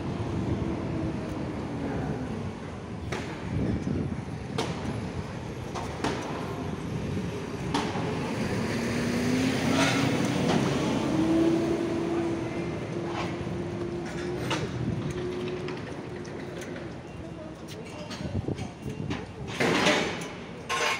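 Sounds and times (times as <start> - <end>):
street traffic: 0.0 - 20.9
vehicle engine revving: 8.2 - 14.0.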